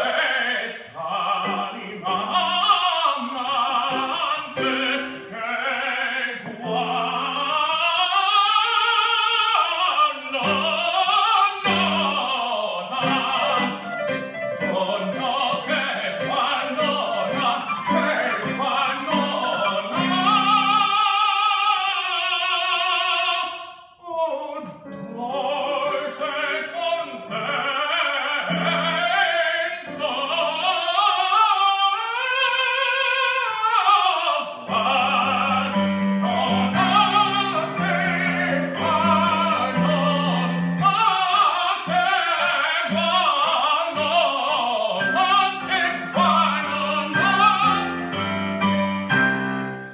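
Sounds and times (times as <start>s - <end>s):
man singing opera: 0.0s - 49.9s
electric piano accompaniment: 13.1s - 21.0s, 45.0s - 49.9s.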